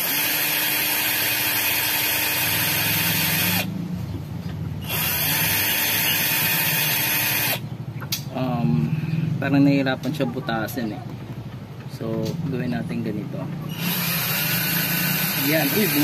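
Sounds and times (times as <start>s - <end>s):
cordless drill motor whine: 0.0s - 3.7s, 4.8s - 7.6s, 13.7s - 16.0s.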